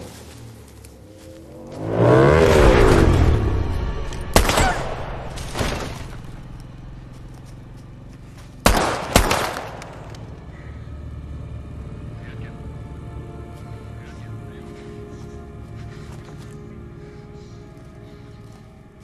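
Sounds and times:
dirt bike engine passing: 0.0s - 13.2s
gunshots with ringing echo: 4.3s - 6.0s, 8.6s - 10.2s.

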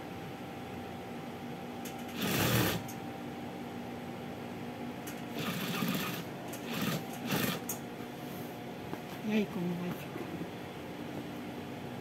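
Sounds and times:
sewing machine motor humming: 2.1s - 2.9s, 5.3s - 7.7s.

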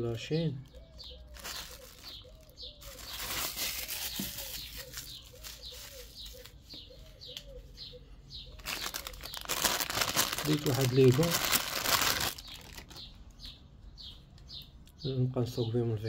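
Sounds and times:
birds calling: 0.0s - 16.0s
thin high bird chirps: 0.5s - 15.1s
rustling noise: 1.4s - 6.7s.

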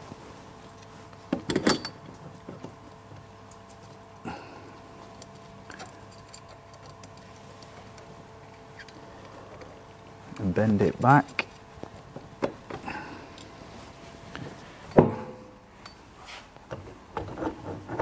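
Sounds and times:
small metal clinks: 5.2s - 7.4s.

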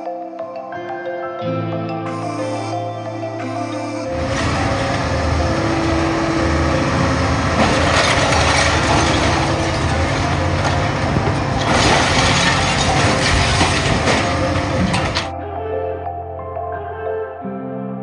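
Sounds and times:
bucket crunching glass and metal: 4.1s - 15.3s
excavator diesel engine: 4.1s - 15.3s.

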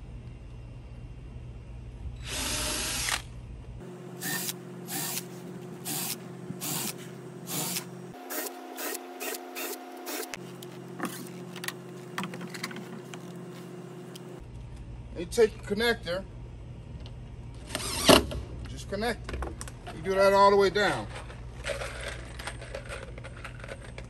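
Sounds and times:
cordless drill driving screws: 2.2s - 3.3s, 4.2s - 5.3s, 5.9s - 10.4s.

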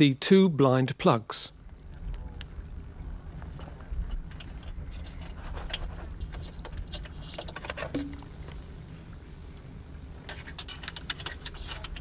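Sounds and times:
steady low rumble: 1.5s - 7.0s.

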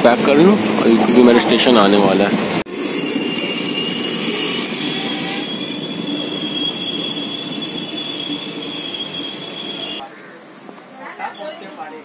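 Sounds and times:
train wheels rumbling on rails: 0.0s - 10.0s
high wheel squeal: 2.7s - 10.0s.

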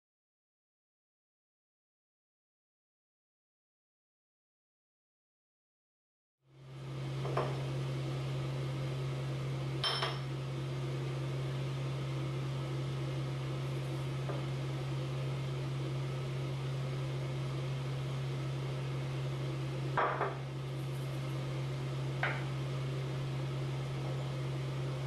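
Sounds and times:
low machine hum: 6.5s - 25.0s
ringing clink: 9.8s - 10.2s.

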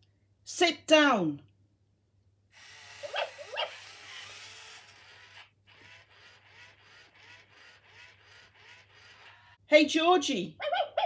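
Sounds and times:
toy motors whirring: 2.5s - 9.6s.

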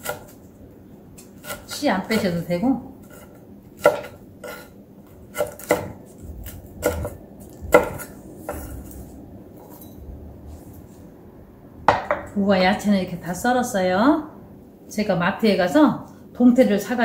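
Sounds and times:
knife knocking on cutting board: 11.9s - 12.3s.

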